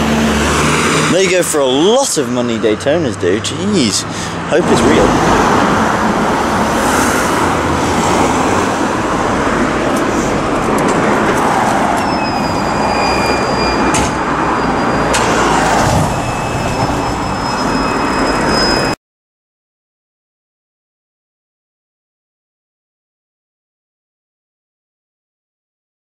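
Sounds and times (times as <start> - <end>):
street traffic: 0.0 - 19.0
thin high whine: 11.9 - 19.0.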